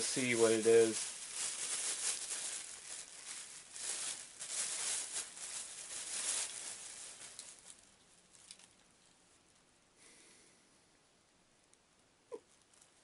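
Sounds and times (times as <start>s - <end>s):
plastic bag crinkling: 0.0s - 9.0s, 12.4s - 13.0s.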